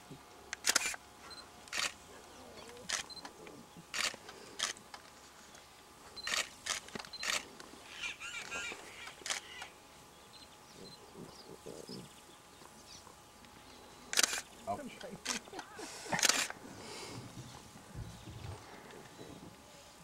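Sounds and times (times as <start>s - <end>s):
camera shutter clicks: 0.6s - 1.0s, 1.7s - 2.0s, 2.8s - 3.3s, 3.9s - 4.8s, 6.2s - 7.5s, 8.4s - 9.7s, 14.1s - 14.5s, 16.2s - 16.6s.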